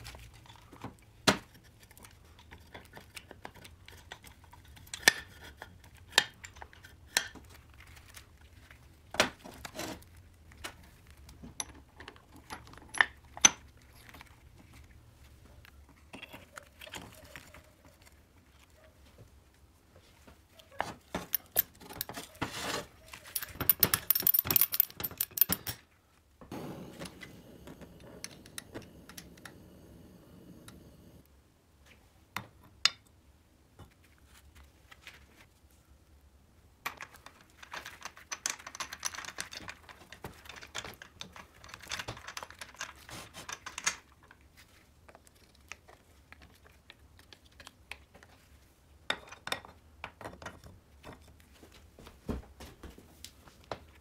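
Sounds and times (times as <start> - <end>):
metal engine parts clicking: 23.3 - 25.8
soft rustle: 33.9 - 36.1.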